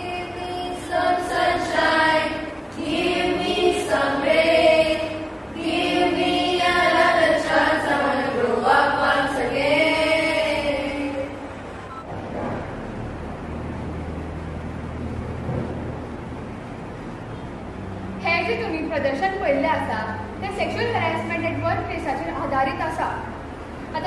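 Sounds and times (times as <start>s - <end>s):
group of voices singing in chorus: 0.0s - 11.6s.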